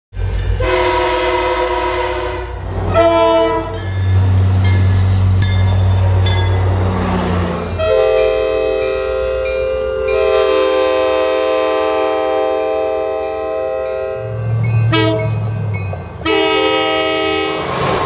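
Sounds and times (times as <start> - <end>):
passing train engine and rail rumble: 0.1 - 18.0
train horn blasts: 0.6 - 3.9, 7.4 - 15.4, 16.2 - 17.7.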